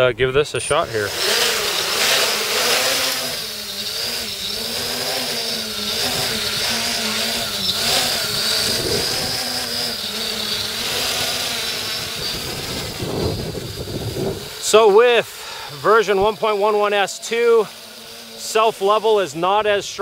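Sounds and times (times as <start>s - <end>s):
quadcopter motors buzzing: 0.0s - 20.0s
wind buffeting microphone: 3.4s - 14.8s.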